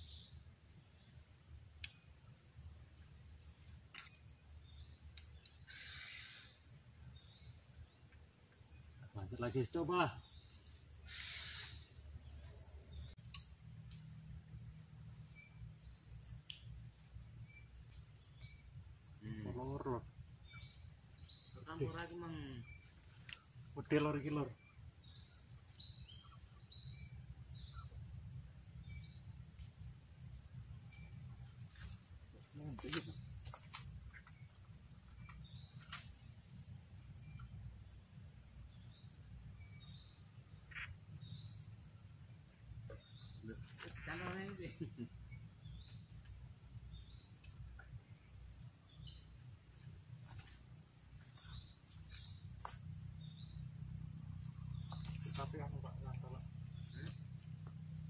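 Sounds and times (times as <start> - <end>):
insects trilling: 0.0 - 58.0
sharp tick: 1.8 - 2.0
faint chirps: 4.0 - 37.9, 42.7 - 58.0.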